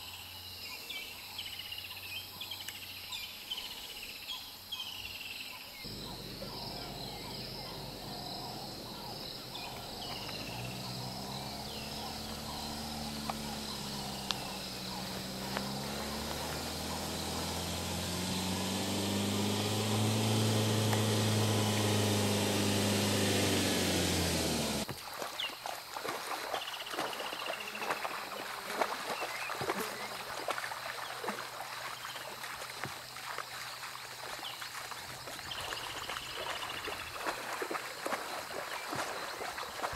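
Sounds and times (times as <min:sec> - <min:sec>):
insects chirping: 0:00.0 - 0:39.9
water splashing and trickling: 0:05.9 - 0:23.6, 0:24.8 - 0:39.9
vehicle engine running: 0:05.9 - 0:24.9.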